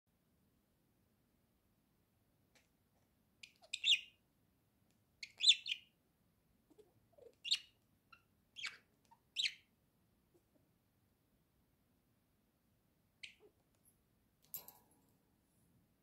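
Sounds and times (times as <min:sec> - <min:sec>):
budgerigar chirping: 0:03.4 - 0:04.2, 0:05.2 - 0:06.0, 0:06.7 - 0:09.7, 0:13.2 - 0:13.6.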